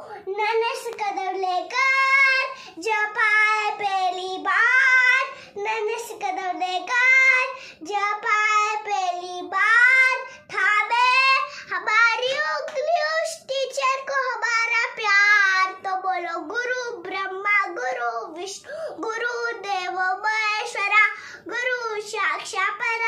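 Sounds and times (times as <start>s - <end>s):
breaths: 0.0s - 0.3s, 2.5s - 2.8s, 5.3s - 5.6s, 7.5s - 7.9s, 10.2s - 10.5s, 11.4s - 11.8s, 18.6s - 19.0s, 21.1s - 21.5s.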